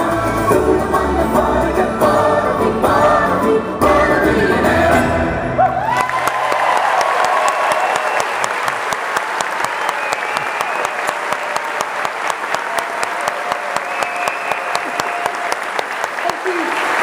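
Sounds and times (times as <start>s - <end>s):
audience cheering: 5.6s - 17.0s
audience clapping: 5.9s - 17.0s.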